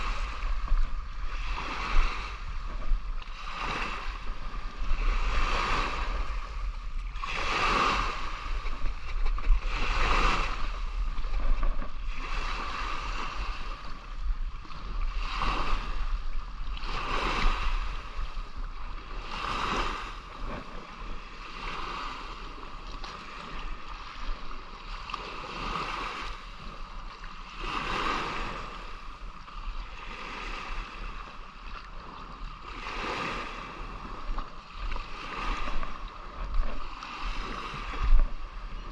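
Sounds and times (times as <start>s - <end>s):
seawater sloshing in surges: 0.0s - 38.9s.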